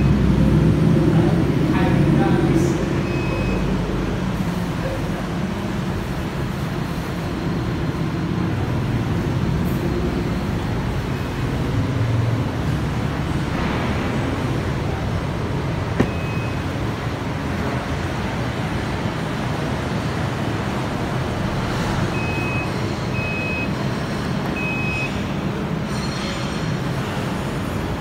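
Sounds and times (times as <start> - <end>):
tailgate lift click: 16.0 - 16.4
short high beeps: 16.0 - 16.6.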